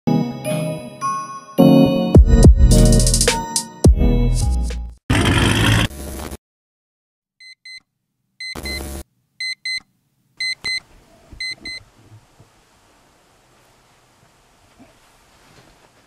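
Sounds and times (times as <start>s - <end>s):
music: 0.1s - 5.0s
electronic alarm beeping: 8.4s - 9.8s, 10.4s - 10.8s, 11.4s - 11.8s.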